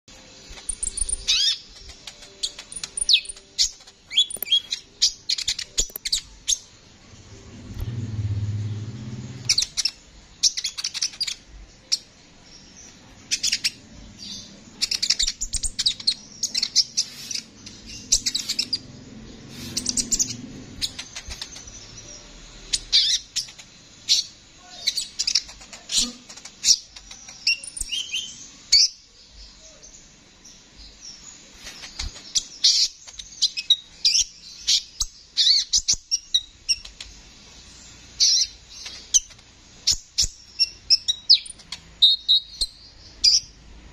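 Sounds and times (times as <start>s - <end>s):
bird twittering song: 0.1s - 43.6s
faint low rumble: 6.2s - 10.0s.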